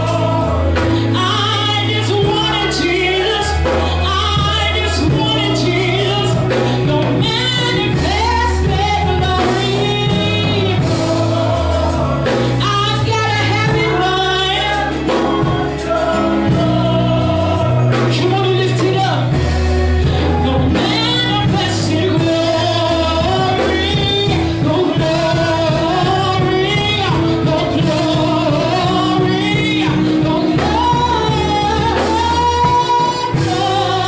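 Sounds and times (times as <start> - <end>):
backing voices singing: 0.0 - 34.0
instrumental backing: 0.0 - 34.0
woman singing lead: 0.0 - 34.0.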